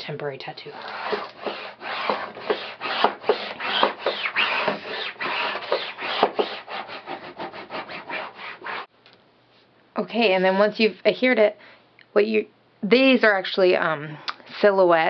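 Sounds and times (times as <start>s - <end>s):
scraper rubbing over paper: 0.7s - 8.9s.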